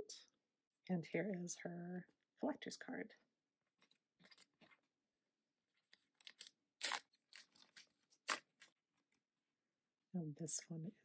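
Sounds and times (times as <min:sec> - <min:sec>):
wrapper crinkling and tearing: 0:05.8 - 0:08.8.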